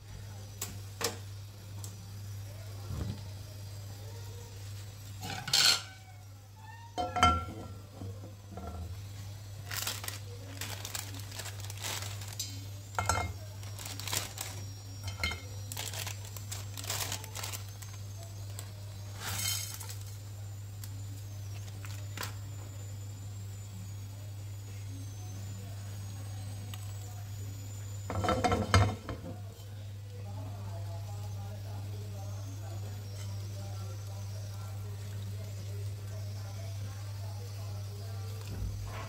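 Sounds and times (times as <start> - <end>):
frying pan set on burner grate: 5.0 - 6.0, 7.0 - 20.2, 28.1 - 29.7.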